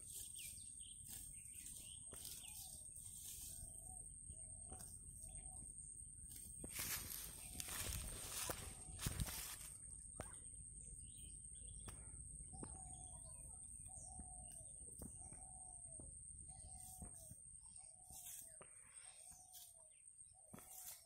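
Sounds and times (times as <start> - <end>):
rustle: 0.0 - 4.0, 6.3 - 9.8
bird calling: 0.0 - 5.8, 6.8 - 21.0.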